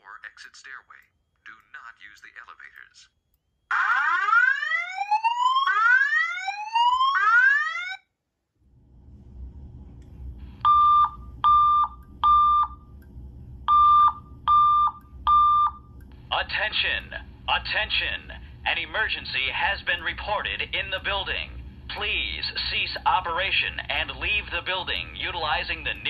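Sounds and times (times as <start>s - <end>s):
fire alarm whoop sweeps: 3.7s - 8.0s
low hum: 8.5s - 26.0s.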